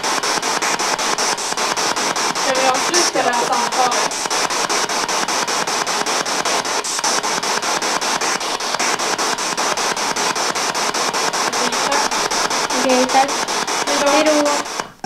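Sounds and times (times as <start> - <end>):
pulsing radio static: 0.0 - 15.0.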